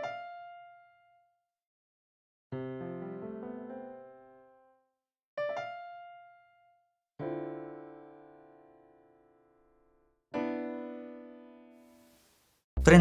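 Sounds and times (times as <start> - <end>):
piano chords ringing: 7.2 - 11.7.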